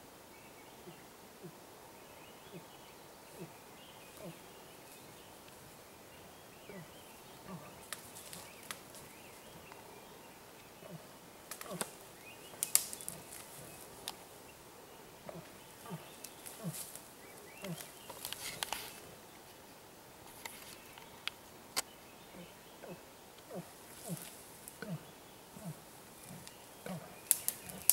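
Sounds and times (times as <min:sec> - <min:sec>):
twigs and brush snapping: 0:07.8 - 0:09.8, 0:11.4 - 0:14.2, 0:15.3 - 0:19.0, 0:26.2 - 0:27.9.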